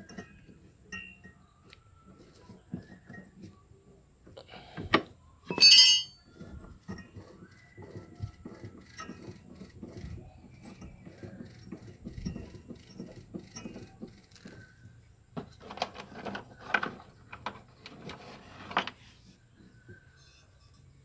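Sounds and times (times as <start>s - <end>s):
metallic clinks: 5.5s - 6.2s.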